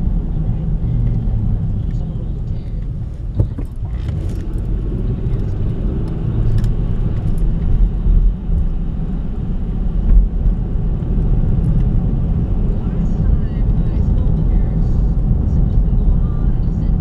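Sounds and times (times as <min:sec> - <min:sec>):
car cabin road noise: 0:00.0 - 0:17.0
light clicks and bumps: 0:00.9 - 0:04.7.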